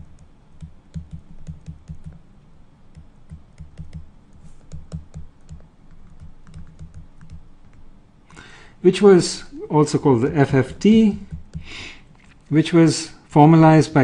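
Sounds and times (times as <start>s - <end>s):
stylus tapping on tablet: 0.6s - 2.1s, 11.2s - 11.7s.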